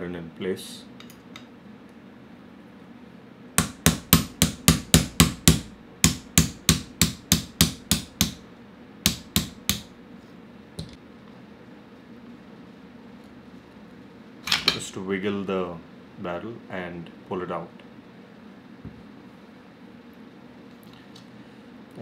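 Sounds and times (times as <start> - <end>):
hammer tapping metal punch: 3.6 - 8.4, 9.1 - 9.9.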